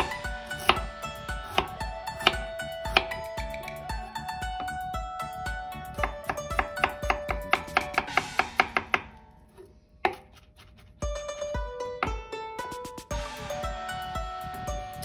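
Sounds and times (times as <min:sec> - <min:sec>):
knife chopping on wooden board: 0:00.0 - 0:03.2, 0:06.0 - 0:09.2, 0:10.0 - 0:10.5
plucked-string background music: 0:00.0 - 0:09.6, 0:11.0 - 0:15.0.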